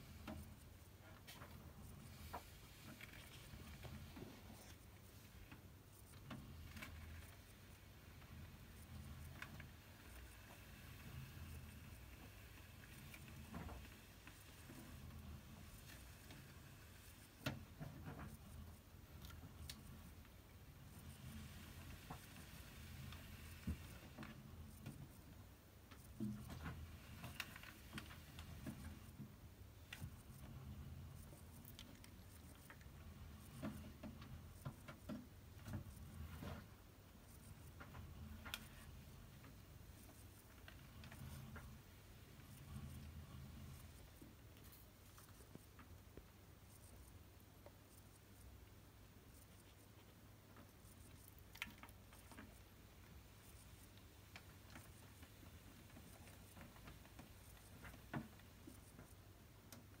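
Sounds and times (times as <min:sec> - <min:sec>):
faint taps and rustles: 0:00.0 - 0:48.5, 0:49.2 - 1:00.0
faint ticks and clicks: 0:00.0 - 1:00.0.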